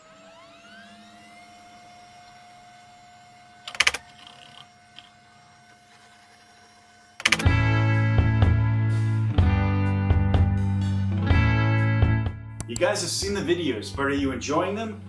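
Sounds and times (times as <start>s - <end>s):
computer electrical hum: 0.0s - 7.8s
computer clicking: 3.7s - 5.1s, 7.2s - 7.5s
loud guitar music: 7.3s - 15.0s.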